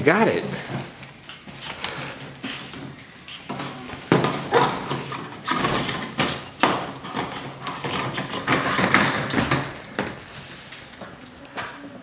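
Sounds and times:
plastic block knocking on floor: 3.5s - 10.3s.

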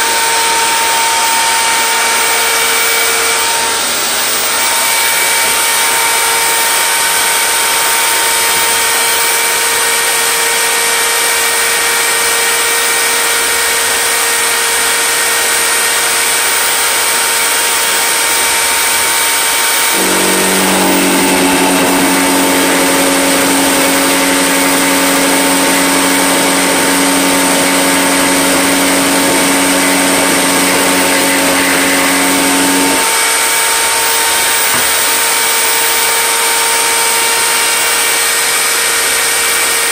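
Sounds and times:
router whining: 0.0s - 39.9s.

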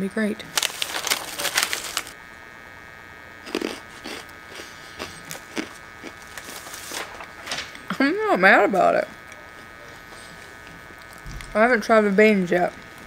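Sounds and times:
electrical hum: 0.0s - 13.0s
crunchy snack chewing: 3.4s - 7.0s.

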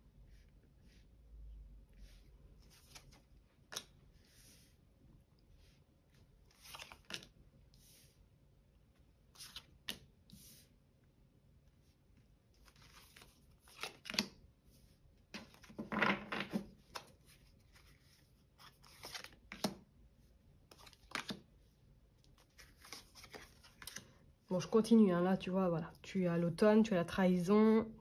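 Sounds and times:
card rustle: 2.6s - 4.0s, 6.5s - 7.4s, 15.4s - 19.8s, 22.2s - 24.1s
cards sliding and patting on table: 2.6s - 4.7s.

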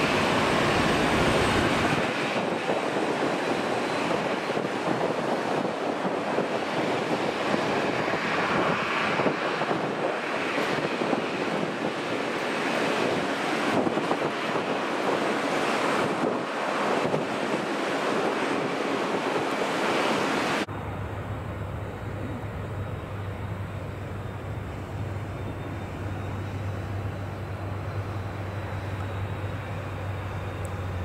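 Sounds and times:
low aircraft drone: 0.0s - 5.0s, 20.6s - 31.0s
jet engine noise: 0.0s - 31.0s.

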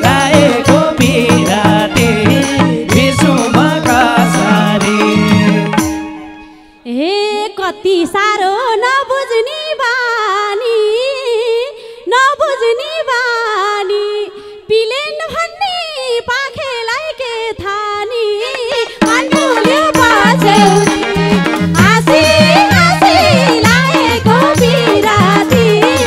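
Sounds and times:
woman singing folk melody: 6.8s - 26.0s.

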